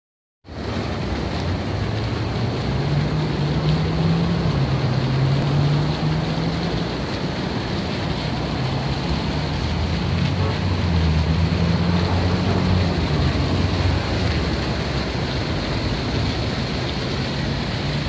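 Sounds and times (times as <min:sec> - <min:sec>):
fountain water splashing: 0:00.5 - 0:18.0.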